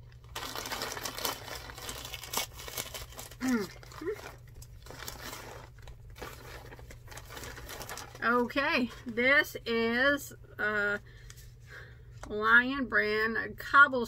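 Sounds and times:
plastic mailer bag tearing: 0:00.1 - 0:08.7.

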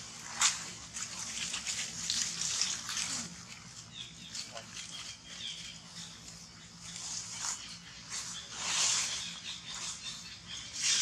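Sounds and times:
dry leaves crackling and rustling: 0:00.0 - 0:11.0.

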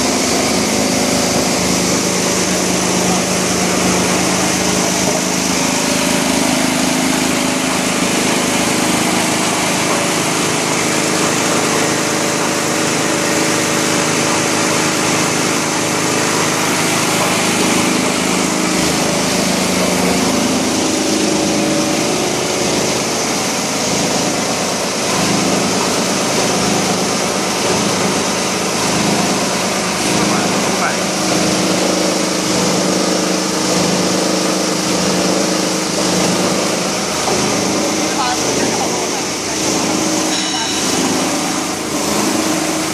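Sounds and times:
plastic crusher machine din: 0:00.0 - 0:42.9.

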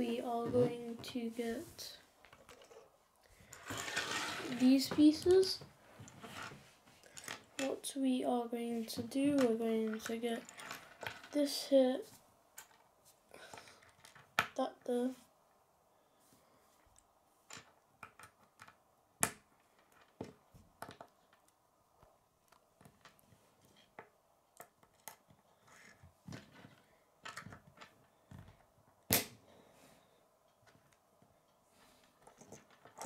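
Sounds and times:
loud plastic snaps: 0:29.1 - 0:29.4.

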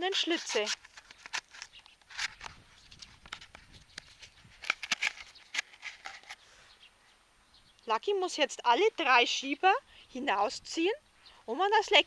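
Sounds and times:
cardboard scraping and clicking: 0:00.1 - 0:06.4.

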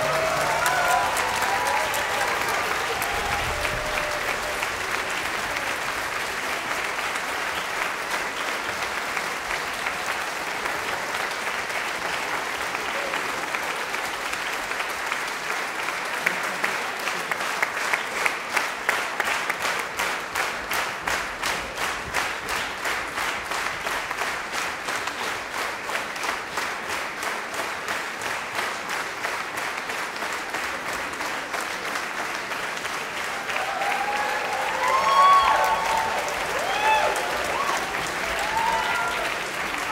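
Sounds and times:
audience applauding: 0:00.0 - 0:39.9.

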